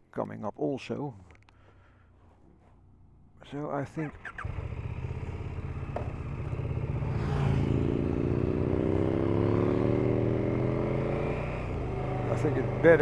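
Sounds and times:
click: 0:01.3 - 0:01.6
motorcycle engine idling and revving: 0:03.9 - 0:13.0.

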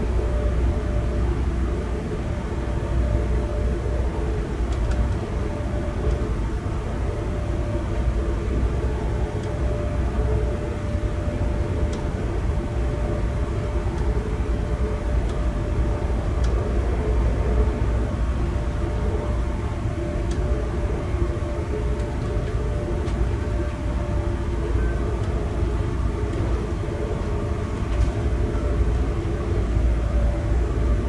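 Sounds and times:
faint steady hum: 0:00.0 - 0:31.0
train wheels rumbling on rails: 0:00.0 - 0:31.0.

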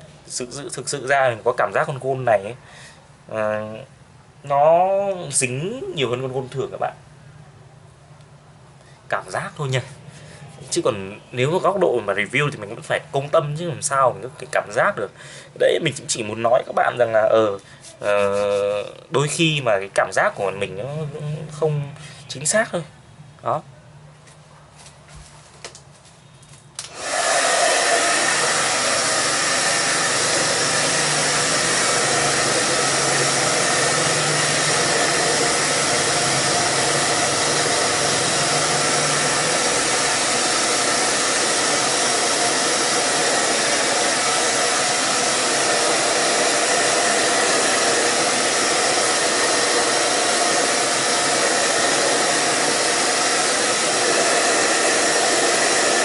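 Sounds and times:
hair dryer running: 0:26.8 - 0:56.0.

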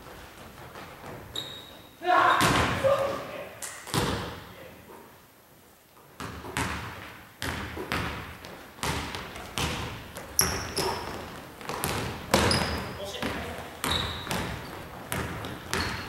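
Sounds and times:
sneakers squeaking on floor: 0:00.0 - 0:03.2, 0:06.2 - 0:16.0
basketball bouncing on gym floor: 0:00.4 - 0:01.6, 0:02.3 - 0:02.9, 0:03.9 - 0:04.5, 0:06.2 - 0:16.0.

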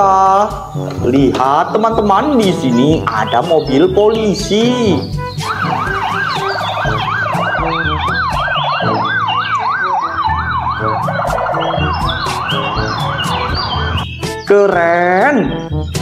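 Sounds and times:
electronic police siren wailing: 0:05.2 - 0:14.2.

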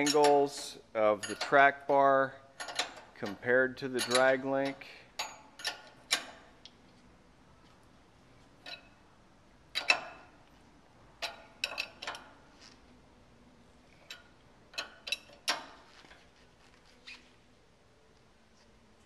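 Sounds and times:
wrench clicking on nut: 0:02.6 - 0:03.1, 0:04.0 - 0:06.5, 0:09.7 - 0:10.2, 0:11.2 - 0:12.3, 0:14.0 - 0:15.8.

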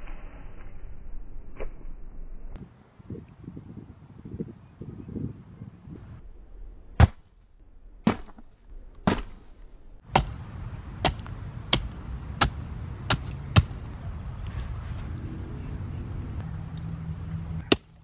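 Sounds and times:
axe chopping into melon: 0:10.1 - 0:10.4, 0:11.0 - 0:13.9, 0:17.7 - 0:18.0.

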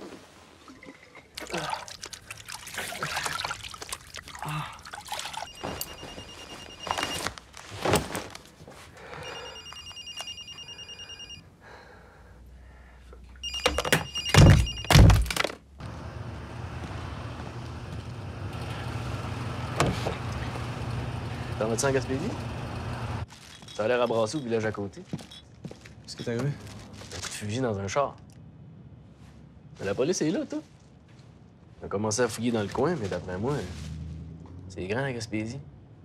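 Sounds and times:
telephone ringing: 0:05.4 - 0:07.3, 0:09.2 - 0:11.4, 0:13.4 - 0:15.0.

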